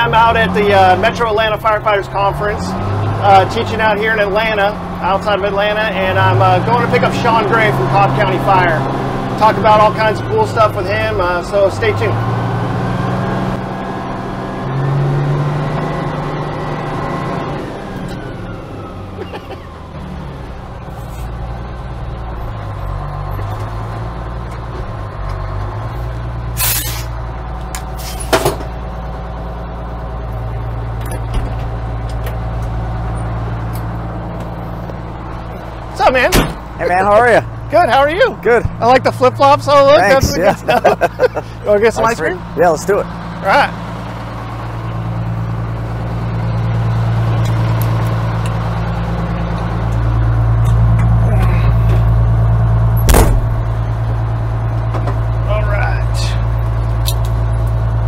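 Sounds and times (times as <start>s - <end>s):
fire engine running: 0.0s - 58.0s
air brake hisses: 26.6s - 27.1s.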